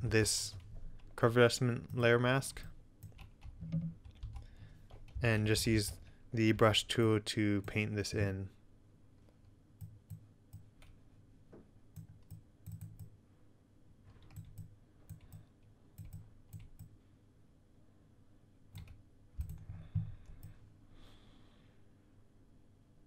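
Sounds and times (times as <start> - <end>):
computer mouse clicking: 3.0 - 5.2, 12.0 - 13.2, 14.2 - 17.0, 18.7 - 20.6.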